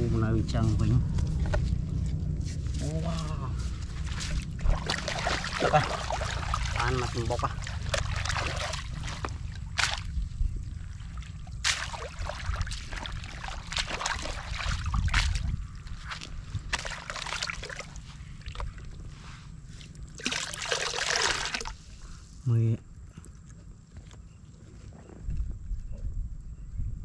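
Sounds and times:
steady low rumble: 0:00.0 - 0:27.0
water sloshing and splashing: 0:01.3 - 0:22.1.

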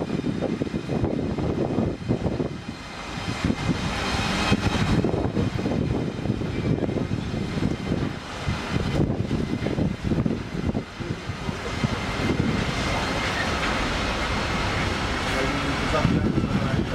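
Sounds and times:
electric locomotives rumbling: 0:00.0 - 0:16.9.

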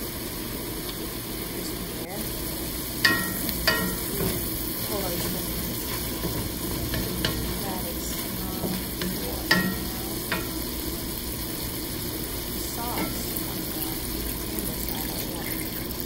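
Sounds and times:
food sizzling in a pan: 0:00.0 - 0:16.0
spatula knocking on a pan: 0:03.0 - 0:10.9, 0:12.9 - 0:13.7.

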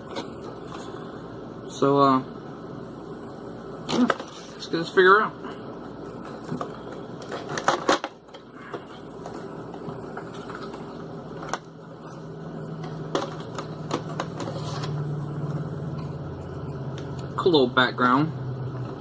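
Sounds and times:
cardboard scraping and rustling: 0:13.2 - 0:15.1.

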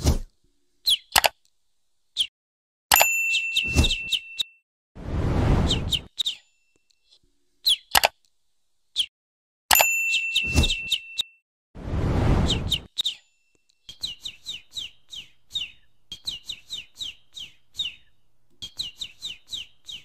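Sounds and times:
clicks: 0:01.1 - 0:01.5, 0:07.9 - 0:08.3
bell-like ding: 0:02.9 - 0:04.6, 0:09.7 - 0:11.4
cartoon bird tweets: 0:03.3 - 0:04.6, 0:05.6 - 0:06.4, 0:10.1 - 0:11.4, 0:12.4 - 0:20.0
whoosh: 0:05.0 - 0:06.1, 0:11.8 - 0:12.9.

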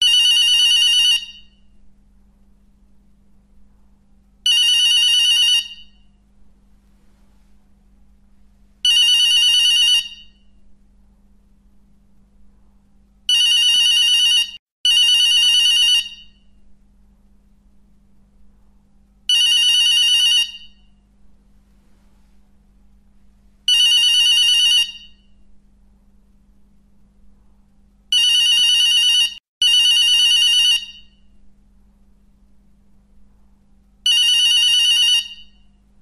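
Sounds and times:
telephone bell ringing: 0:00.0 - 0:01.5, 0:04.5 - 0:06.0, 0:08.9 - 0:10.4, 0:13.3 - 0:16.4, 0:19.3 - 0:20.8, 0:23.7 - 0:25.3, 0:28.2 - 0:31.2, 0:34.1 - 0:35.6.

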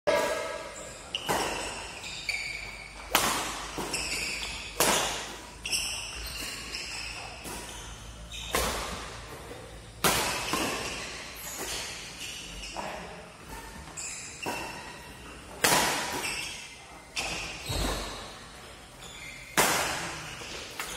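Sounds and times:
racket hitting shuttlecock: 0:00.1 - 0:12.2, 0:14.4 - 0:15.0, 0:15.6 - 0:16.6, 0:19.5 - 0:20.9
shoe squeaks on court: 0:00.1 - 0:15.3, 0:15.9 - 0:20.9.

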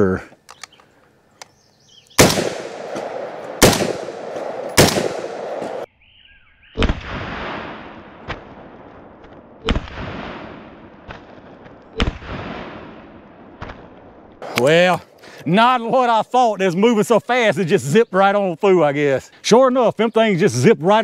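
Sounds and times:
rifle shots with echo: 0:02.2 - 0:05.9, 0:06.8 - 0:14.3.

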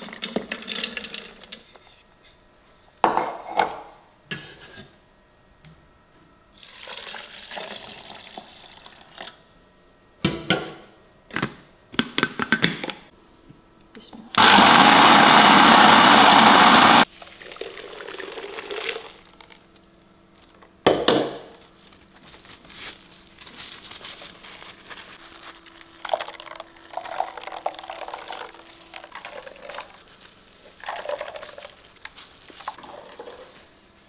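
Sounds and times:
electric blender grinding: 0:14.4 - 0:17.1.

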